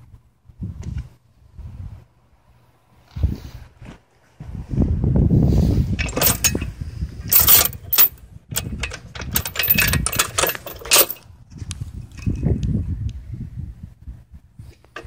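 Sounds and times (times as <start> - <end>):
steel chain clinking and clanking: 6.0 - 6.7, 7.3 - 11.2.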